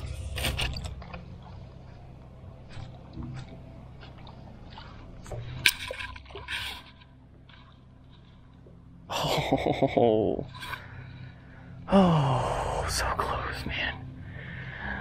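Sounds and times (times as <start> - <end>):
water sloshing and splashing: 0.0 - 9.2, 10.4 - 11.8.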